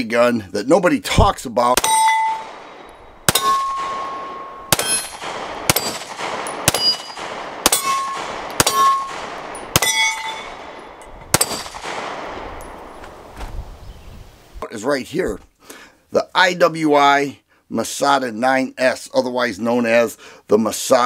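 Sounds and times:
steel plate target ringing: 0:01.8 - 0:13.0
pistol shots: 0:01.8 - 0:13.3.

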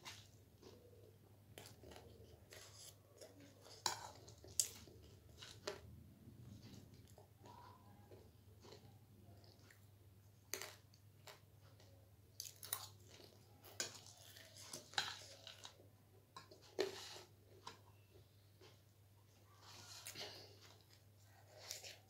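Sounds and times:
person chewing crunchy snack: 0:12.3 - 0:15.8.

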